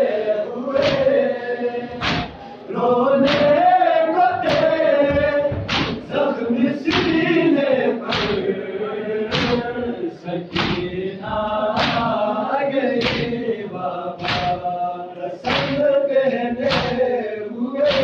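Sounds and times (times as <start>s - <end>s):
men chanting in unison: 0.0s - 18.0s
group chest-beating slaps: 0.8s - 8.6s, 9.3s - 14.8s, 15.4s - 17.2s, 17.8s - 18.0s.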